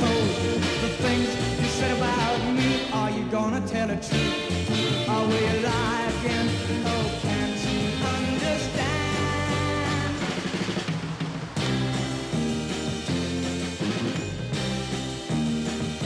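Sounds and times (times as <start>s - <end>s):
rock band playing: 0.0s - 16.0s.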